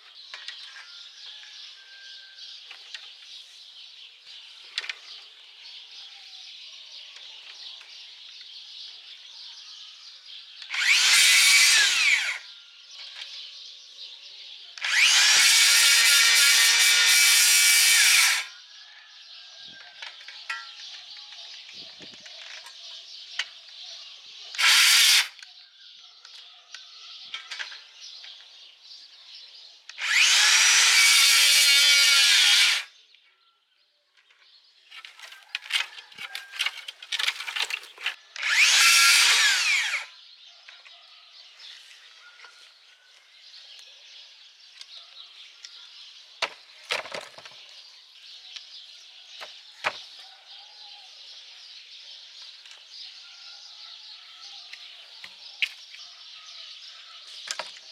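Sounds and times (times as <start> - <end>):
circular saw cutting branches: 10.6 - 12.5, 14.8 - 18.6, 24.5 - 25.4, 29.9 - 33.0, 34.9 - 40.2.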